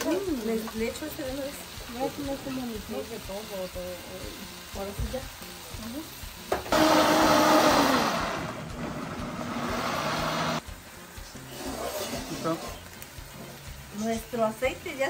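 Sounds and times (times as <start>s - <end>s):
pots sizzling on stove: 0.0s - 15.0s
blender running: 3.7s - 10.7s.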